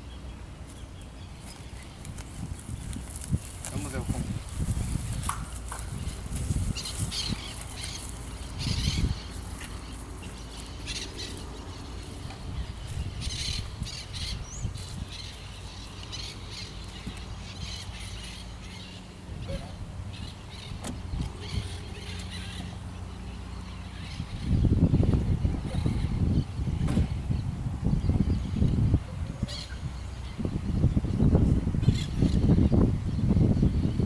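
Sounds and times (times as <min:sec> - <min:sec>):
wind rumbling on microphone: 0:00.0 - 0:34.0
footsteps through grass and dirt: 0:00.6 - 0:18.4
bird calls: 0:05.2 - 0:31.1.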